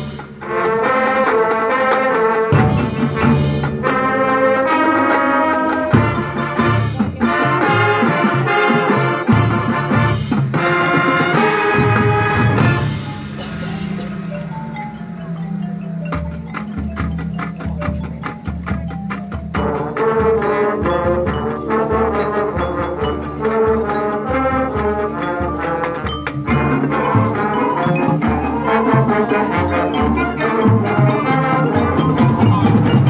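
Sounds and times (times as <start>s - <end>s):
loud brass chords: 0.0s - 15.3s
drums and mallet percussion: 0.0s - 33.0s
marching band playing: 0.0s - 33.0s.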